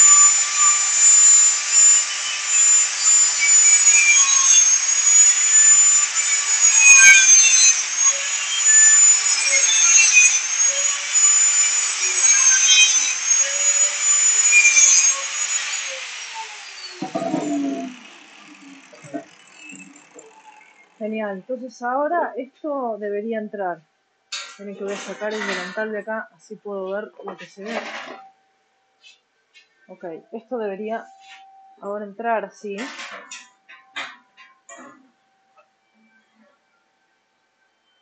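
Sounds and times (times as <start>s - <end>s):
angle grinder cutting steel: 0.0s - 21.2s, 24.4s - 26.0s.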